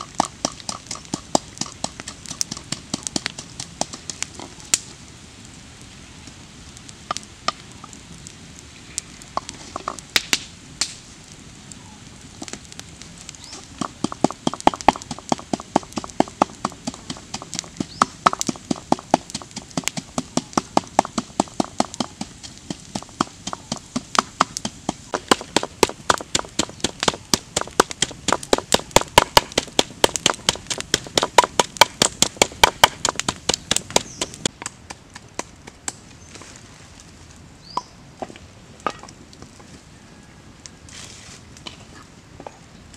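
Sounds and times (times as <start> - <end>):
pestle pounding in clay mortar: 22.7 - 34.4.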